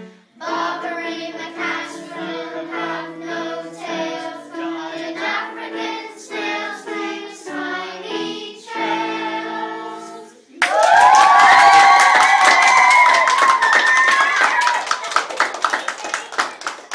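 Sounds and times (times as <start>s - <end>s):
children singing: 0.0s - 10.5s
children cheering: 10.6s - 16.9s
loud clapping: 10.6s - 16.9s.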